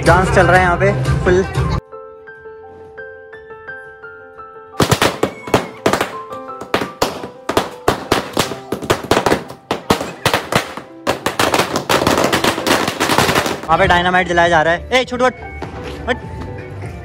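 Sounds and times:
firecrackers banging: 4.8s - 13.9s.

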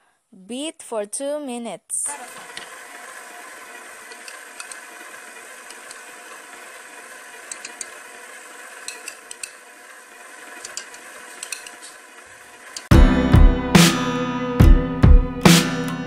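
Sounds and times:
stand mixer running: 2.1s - 12.9s.

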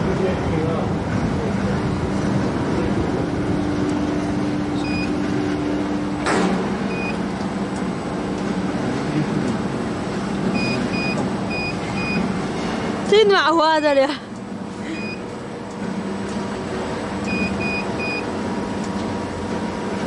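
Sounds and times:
burner blower and flame rushing: 0.0s - 13.2s
steady hum: 0.0s - 20.0s
short electronic beeps: 4.8s - 5.2s, 6.9s - 7.2s, 10.6s - 12.2s, 14.9s - 15.2s, 17.3s - 18.3s.

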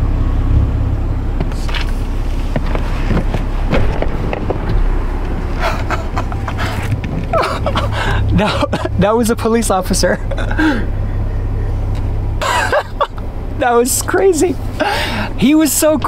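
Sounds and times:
car engine idling: 0.0s - 16.0s
knocks and rustling in car seat: 1.4s - 7.7s.

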